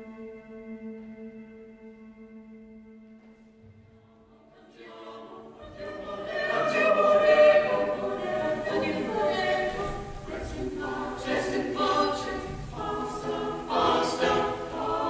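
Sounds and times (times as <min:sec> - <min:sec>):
choir singing: 0:03.6 - 0:15.0.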